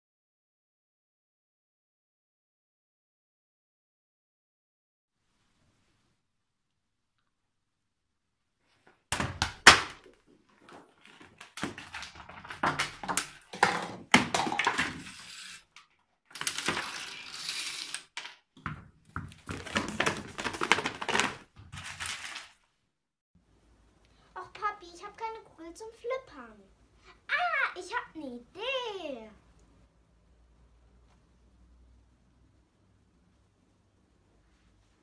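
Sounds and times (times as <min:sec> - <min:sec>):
objects knocking and rattling: 0:09.2 - 0:15.2, 0:18.0 - 0:22.4.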